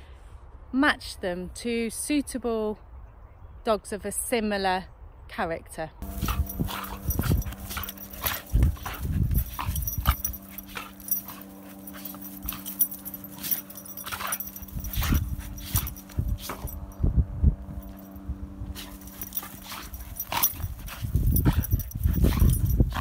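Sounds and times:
scuffling on dry grass: 6.0 - 16.9
dogs growling and yipping: 6.0 - 17.0, 17.7 - 23.0.

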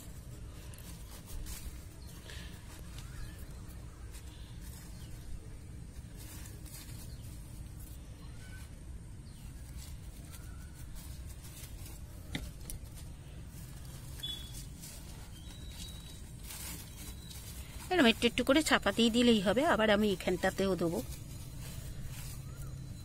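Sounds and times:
hands rustling dry leaves and soil: 0.0 - 23.0
faint bird chirps: 2.0 - 5.5, 6.2 - 12.6, 13.3 - 23.0.

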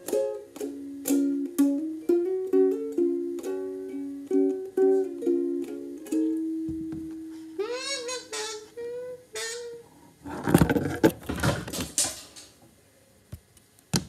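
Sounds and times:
squeaky sliding sounds: 7.6 - 10.6.

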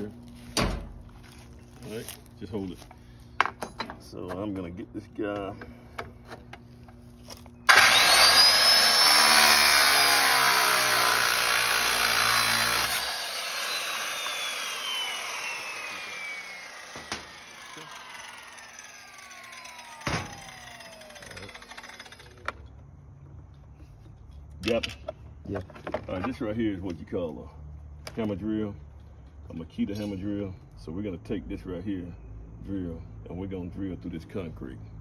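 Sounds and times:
saw blade coasting down whine: 7.4 - 22.7
circular saw cutting steel: 7.7 - 22.5.

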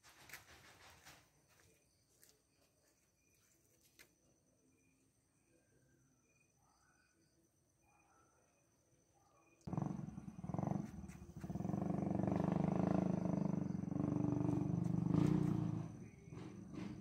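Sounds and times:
cat rough pulsing purr: 9.7 - 17.0.

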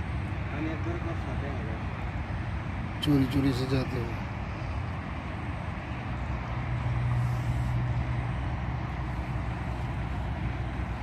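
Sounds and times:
distant vehicle engine drone: 0.0 - 11.0
outdoor noise: 0.0 - 11.0.

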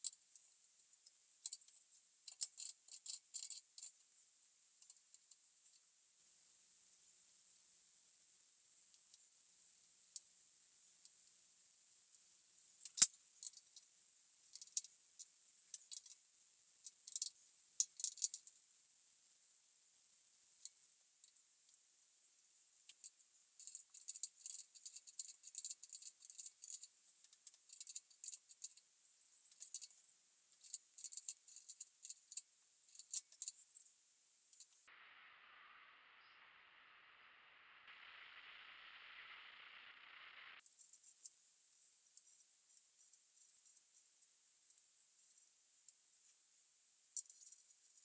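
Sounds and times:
metallic clicks and clinks: 30.5 - 33.6.

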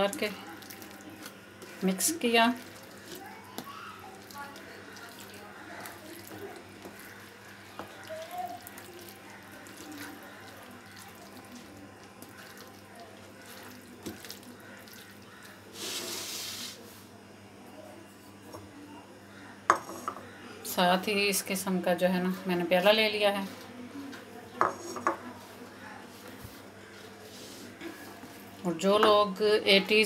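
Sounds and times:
wooden spoon stirring thick food: 0.0 - 17.0, 22.2 - 29.2.

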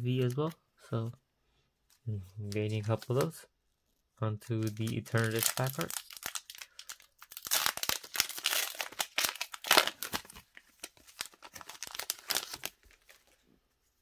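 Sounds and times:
foil wrapper crinkling and tearing: 4.6 - 13.4.

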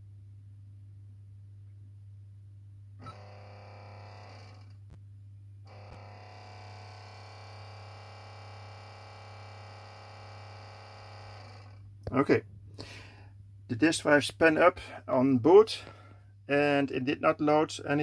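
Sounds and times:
floppy disk drive whirring: 3.0 - 4.7, 5.7 - 11.8.

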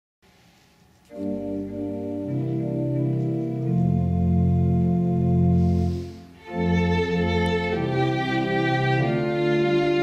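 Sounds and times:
sustained organ-like keyboard chords: 1.1 - 10.0.

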